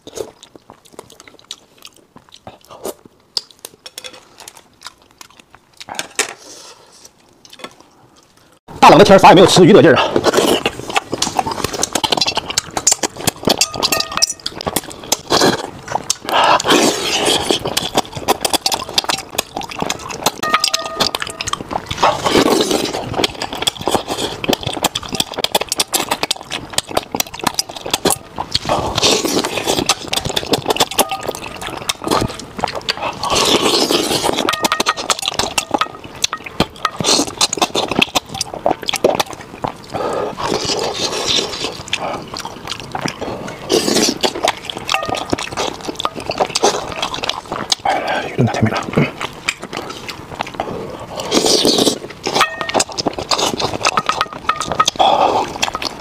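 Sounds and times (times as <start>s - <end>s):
chewing and lip smacks: 0.0s - 6.3s, 10.1s - 56.0s
slurping food: 10.0s - 13.6s, 14.4s - 20.4s, 21.3s - 56.0s
chopsticks clinking metal bowl: 13.5s - 14.6s, 20.4s - 21.7s, 30.8s - 31.9s, 34.4s - 37.2s, 44.9s - 46.4s, 52.4s - 53.0s, 54.0s - 55.0s.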